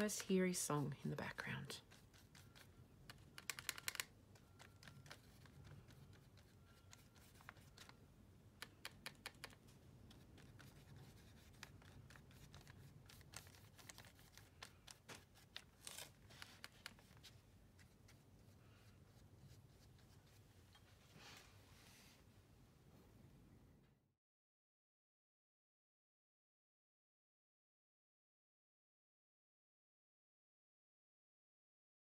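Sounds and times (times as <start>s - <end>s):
paintbrush scratching and tapping: 0.0s - 8.0s, 8.6s - 21.0s.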